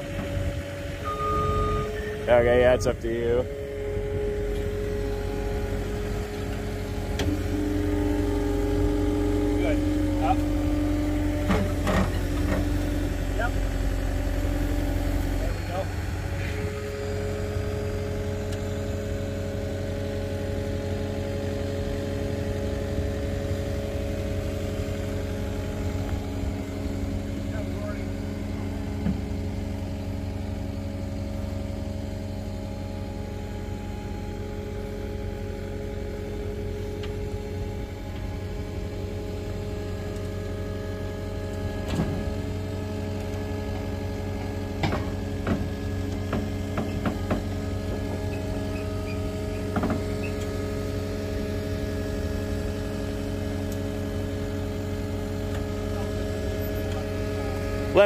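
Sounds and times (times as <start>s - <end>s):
loader engine running: 0.0s - 58.0s.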